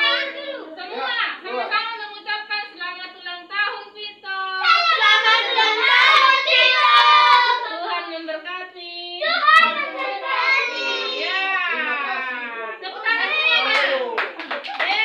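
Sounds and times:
group singing together: 0:04.7 - 0:07.7
sharp hand claps: 0:13.7 - 0:15.0.

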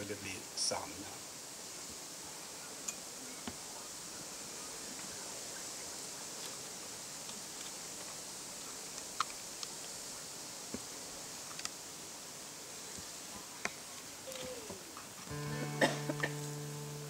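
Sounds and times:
faint high-pitched hiss: 0:00.0 - 0:17.0.

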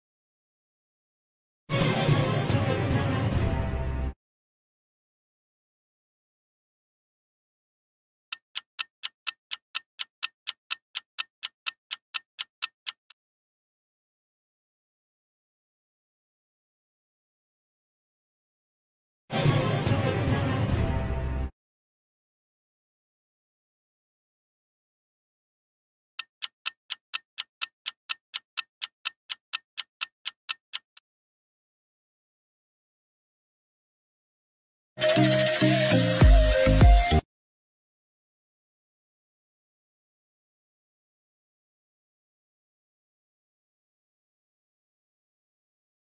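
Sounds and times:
clock ticking: 0:08.3 - 0:13.2, 0:26.2 - 0:31.0.

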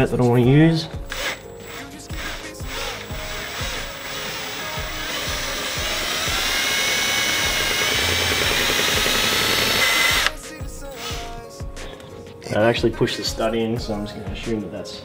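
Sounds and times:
drill grinding into steel: 0:01.1 - 0:11.2
high whine of drill bit: 0:02.9 - 0:10.4.

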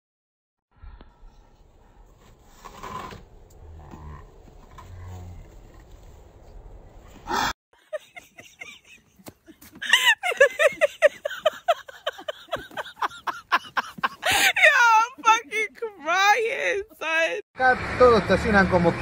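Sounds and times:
people laughing hard: 0:07.8 - 0:14.8.

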